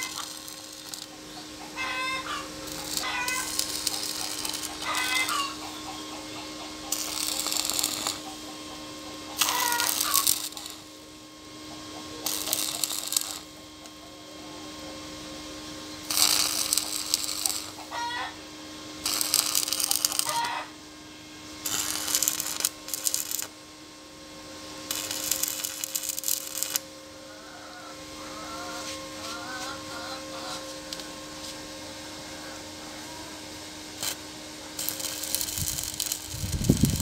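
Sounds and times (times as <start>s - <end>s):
welding arc crackling: 0.0s - 8.6s, 9.3s - 11.0s, 12.1s - 14.0s, 16.0s - 20.7s, 21.5s - 23.6s, 24.7s - 26.9s, 33.9s - 37.0s
steady hum: 0.0s - 37.0s
hens clucking: 1.0s - 7.4s, 8.0s - 10.2s, 17.6s - 18.4s, 27.3s - 30.8s.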